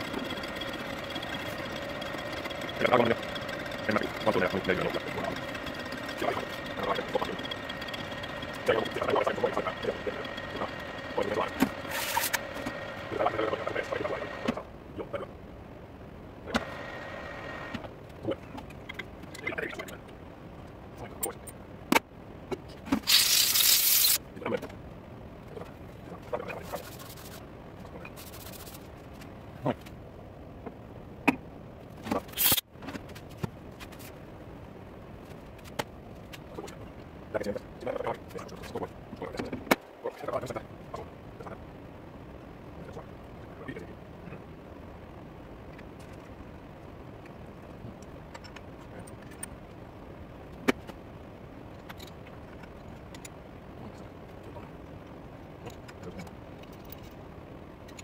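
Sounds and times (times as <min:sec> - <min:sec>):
background hum: 0:00.0 - 0:58.0
hissing scrape: 0:11.9 - 0:12.4, 0:23.0 - 0:24.2
metal parts knocking and scraping: 0:23.0 - 0:24.2.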